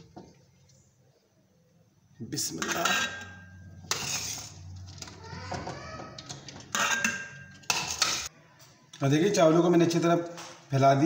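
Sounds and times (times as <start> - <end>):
metal spoon scraping pot: 2.5 - 8.3.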